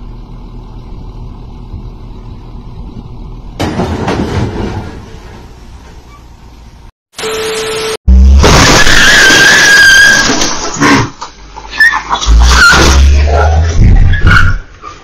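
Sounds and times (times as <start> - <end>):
diesel truck engine running: 0.0 - 6.9.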